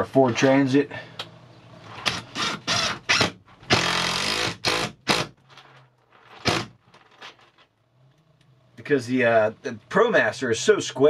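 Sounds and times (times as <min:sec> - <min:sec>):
cordless drill driving a screw: 0:02.0 - 0:05.3.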